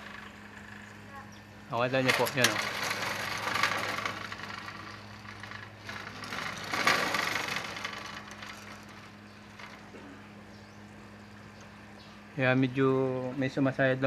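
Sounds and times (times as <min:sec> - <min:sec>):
sliding screen door on its track: 0:00.0 - 0:00.8, 0:01.7 - 0:10.0
door rubbing: 0:02.0 - 0:09.9.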